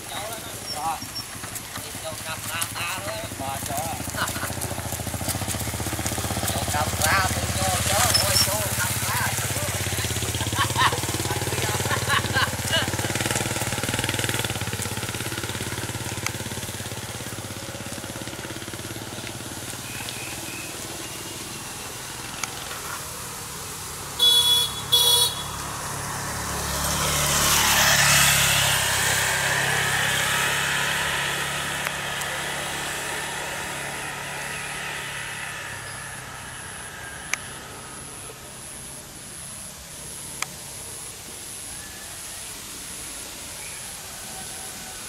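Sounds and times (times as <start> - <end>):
motorbike passing: 0.0 - 45.0
motorbike horn beeps: 24.2 - 25.6.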